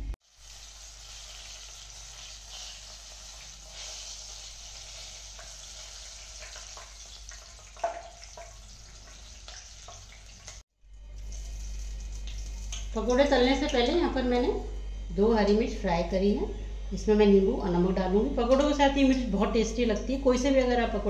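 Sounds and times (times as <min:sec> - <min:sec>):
chillies sizzling in hot oil: 0:00.2 - 0:10.6.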